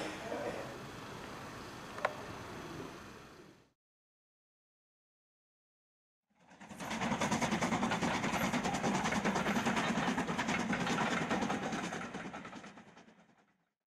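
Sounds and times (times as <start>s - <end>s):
steam locomotive exhaust beating: 6.5s - 13.4s.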